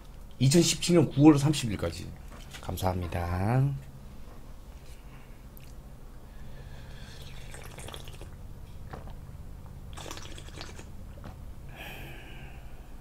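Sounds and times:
slurping and gulping liquid: 6.9 - 9.2, 9.9 - 11.0.

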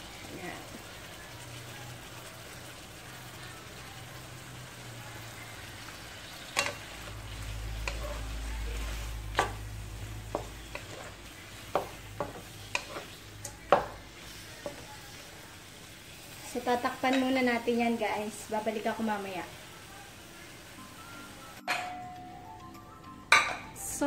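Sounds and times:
shrimp sizzling in wok: 0.0 - 21.8
spatula knocking against wok: 10.2 - 11.1, 11.7 - 13.0, 13.6 - 14.0.

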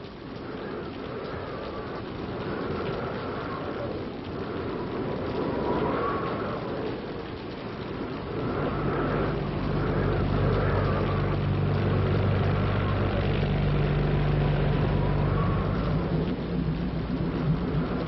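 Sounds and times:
howling wind: 0.0 - 18.0
rain: 0.0 - 18.0
motorboat engine droning: 8.7 - 16.6.

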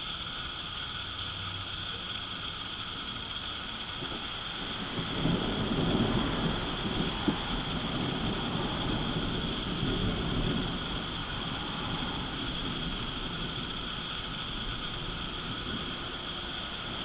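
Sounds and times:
steady hiss: 0.0 - 17.0
rolling thunder: 4.0 - 17.0.

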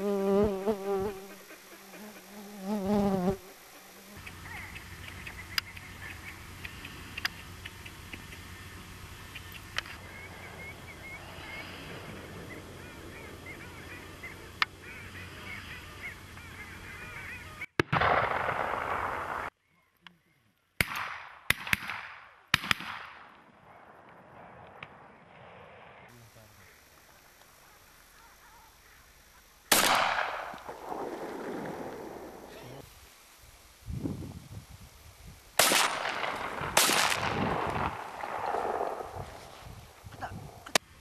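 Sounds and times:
steady hiss: 0.0 - 19.5, 24.1 - 41.0
flock of ducks calling: 9.2 - 17.7
duck honking call: 12.6 - 17.7
sharp loud cracks: 17.8 - 19.5, 20.8 - 23.4, 29.7 - 32.5, 35.6 - 39.5.

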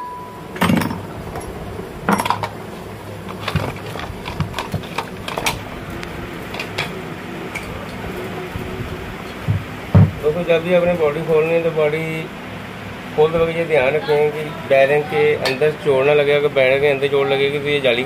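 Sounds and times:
metallic clinks and knocks: 0.6 - 2.6.

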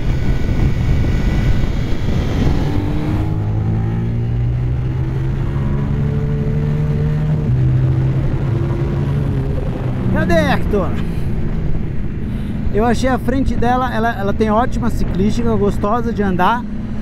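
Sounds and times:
motorcycle engine accelerating: 0.0 - 12.8
wind noise: 0.0 - 17.0.

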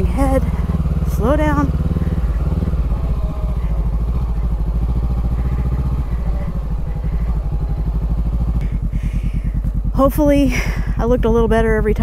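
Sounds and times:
motorbike engine at low revs: 0.0 - 12.0.

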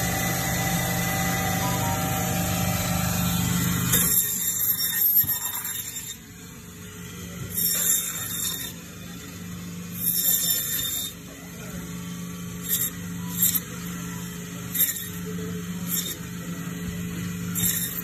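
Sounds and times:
bandsaw humming: 0.0 - 18.0
saw blade screeching through bone: 3.8 - 6.3, 7.5 - 8.8, 9.9 - 11.2, 12.6 - 13.9, 14.6 - 16.3, 17.4 - 18.0.

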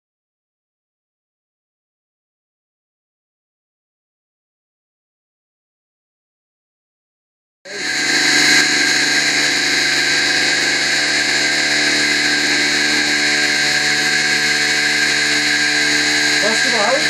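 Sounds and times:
battery charger electric buzz: 7.7 - 17.0.

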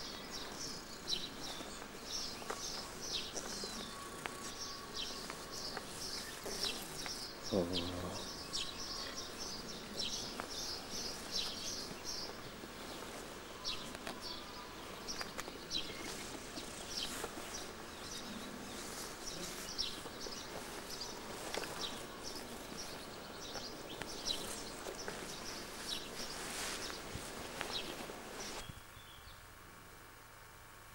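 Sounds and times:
small birds chirping: 0.0 - 29.5
steady outdoor hiss: 0.0 - 30.9
soft clicks and rustles: 15.0 - 28.7.

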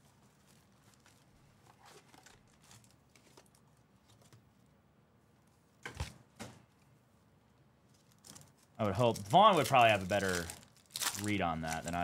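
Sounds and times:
foil packs crinkling: 8.1 - 12.0.

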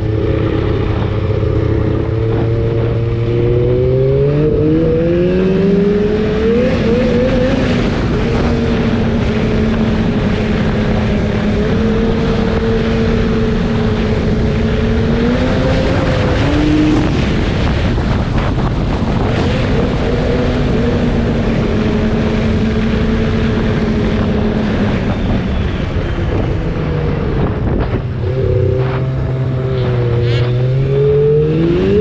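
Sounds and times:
wind on microphone: 0.0 - 32.0.

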